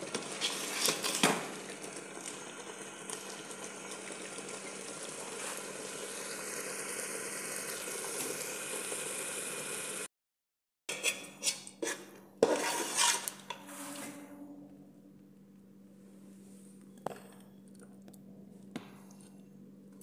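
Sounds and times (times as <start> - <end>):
pot simmering hiss: 0.0 - 10.1
spoon scraping and knocking pot: 10.9 - 13.6
low hum: 14.0 - 19.9.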